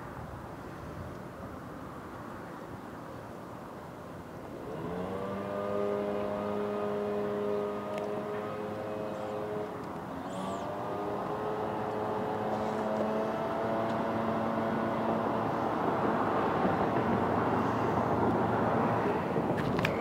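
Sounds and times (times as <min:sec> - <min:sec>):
engine running: 0:04.5 - 0:20.0.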